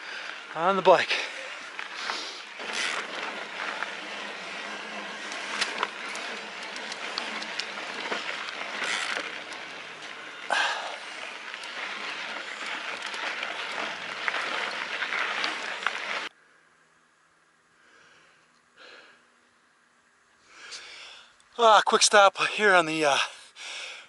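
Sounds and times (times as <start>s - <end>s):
bike tyres on dirt trail: 0.0s - 16.4s
faint breaths: 0.0s - 16.6s, 17.7s - 19.4s, 20.4s - 21.4s, 23.2s - 24.0s.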